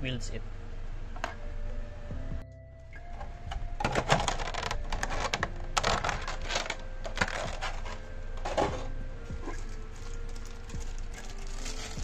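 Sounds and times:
plastic parts clicking together: 3.5 - 8.9
rustling: 4.0 - 12.0.

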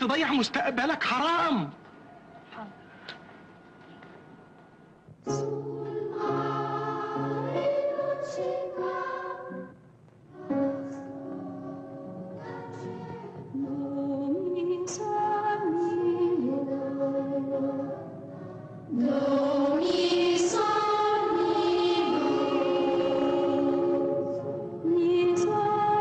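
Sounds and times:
boys singing held notes: 10.4 - 26.0
piano accompaniment: 10.4 - 26.0.

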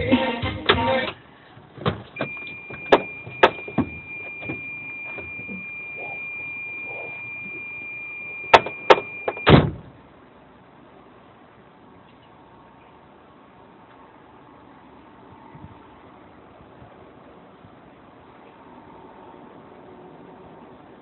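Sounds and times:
electronic warning beep: 2.2 - 9.6
heavy thump: 8.5 - 9.9.

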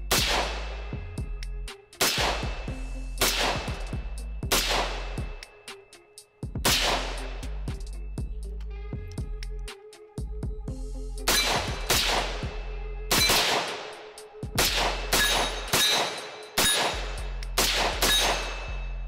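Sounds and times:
rifle shots: 0.1 - 0.8, 2.0 - 3.9, 4.5 - 5.4, 6.6 - 7.3, 11.3 - 18.8.

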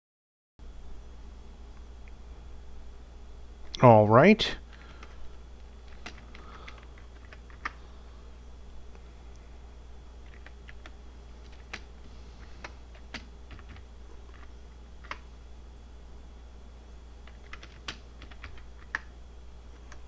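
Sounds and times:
low steady hum: 0.6 - 20.0
keyboard keystrokes: 5.9 - 7.8, 10.2 - 11.9, 12.6 - 15.2, 17.2 - 19.1.

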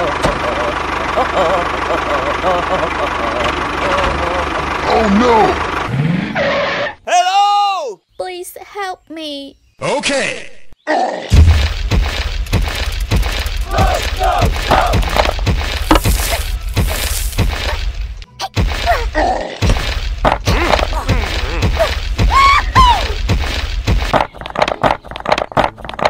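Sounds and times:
thuds and crashing knocks: 11.3 - 26.0
bass-heavy background music: 11.4 - 26.0
cartoon-style voice sounds: 20.5 - 23.1.

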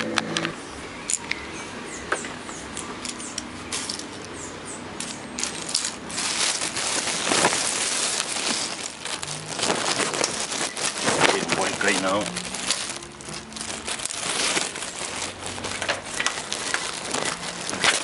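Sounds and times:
plastic bag crinkling: 3.7 - 4.3, 5.0 - 18.0.

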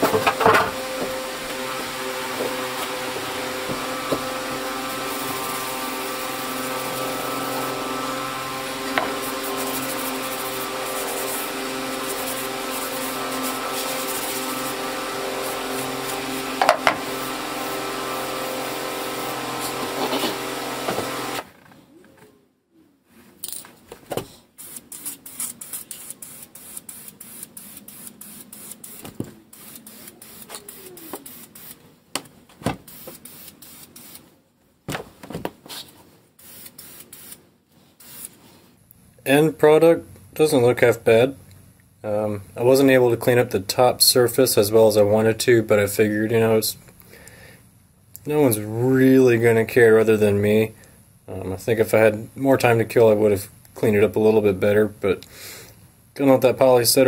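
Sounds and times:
machine humming: 0.0 - 21.5
aerosol can spraying: 2.4 - 21.4, 24.6 - 31.8, 32.8 - 34.3, 36.4 - 37.4, 38.0 - 38.5.

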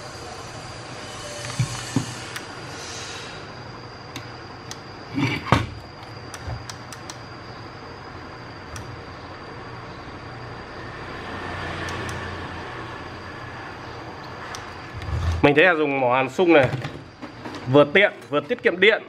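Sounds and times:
soldering gun humming: 0.0 - 15.0.

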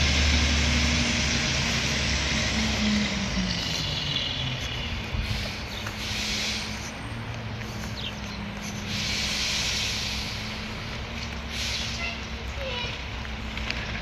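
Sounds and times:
air hiss: 5.3 - 6.8, 8.9 - 10.6, 11.5 - 12.1.

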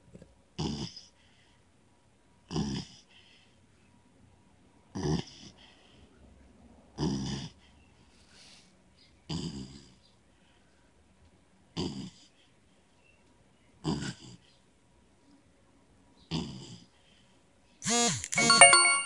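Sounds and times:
puppy snoring: 0.1 - 1.3, 2.4 - 3.2, 4.9 - 5.8, 6.9 - 7.7, 9.2 - 10.0, 11.7 - 12.4, 13.8 - 14.5, 16.3 - 17.0.

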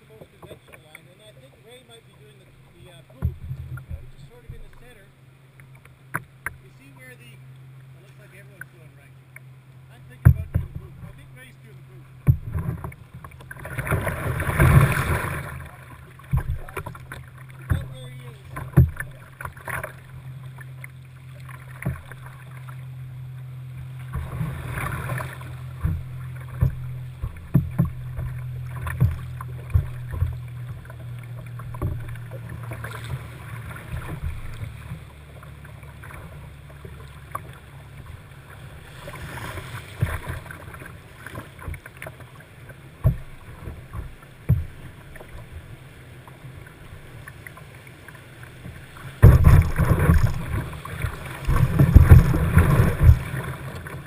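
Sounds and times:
paddle blades splashing: 0.0 - 54.0
water rushing against hull: 0.0 - 54.0
short knocks: 10.2 - 11.2, 16.2 - 19.8, 25.7 - 33.2, 49.2 - 53.4.

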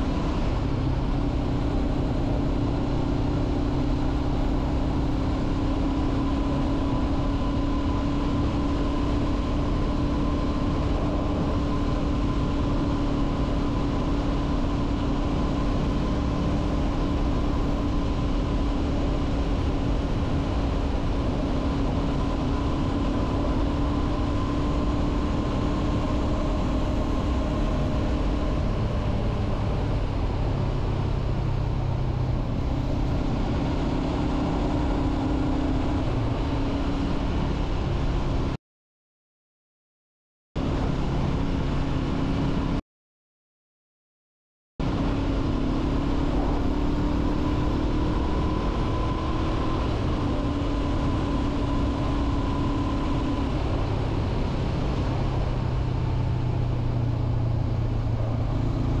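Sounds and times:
wind and road noise: 0.0 - 38.6, 40.6 - 42.8, 44.8 - 59.0
motorcycle engine running: 44.8 - 59.0.

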